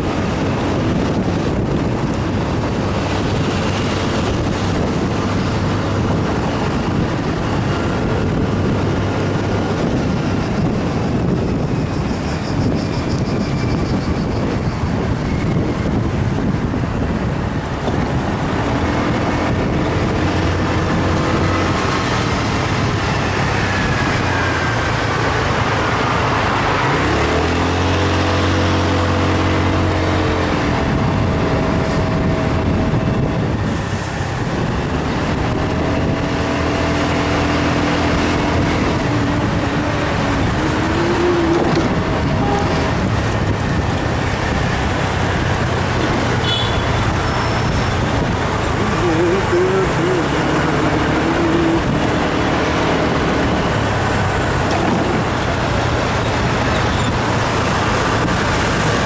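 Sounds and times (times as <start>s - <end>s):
wind and road noise: 0.0s - 59.0s
vehicle engine revving: 17.9s - 59.0s.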